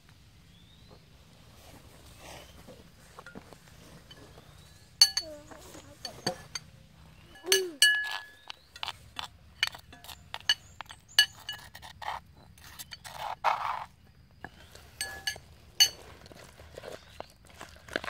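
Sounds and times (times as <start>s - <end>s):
spoon clinking against stone mortar: 4.1s - 6.7s, 7.3s - 13.3s, 14.5s - 16.1s.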